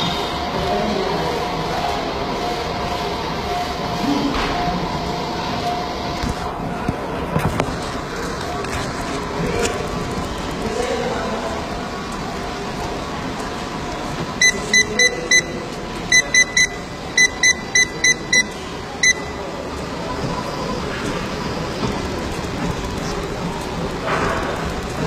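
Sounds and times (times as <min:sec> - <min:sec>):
steady background noise: 0:00.0 - 0:25.0
short high electronic beeps: 0:14.4 - 0:19.4.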